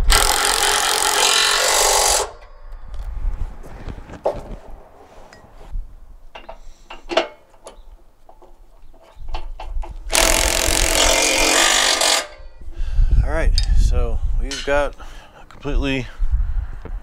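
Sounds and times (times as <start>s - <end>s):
power tool running: 0.0s - 2.4s, 10.1s - 12.4s
tools clicking and knocking: 6.3s - 12.5s.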